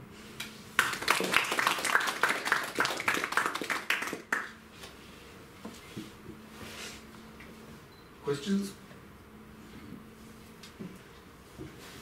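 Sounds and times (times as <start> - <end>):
audience applauding: 0.8 - 4.5.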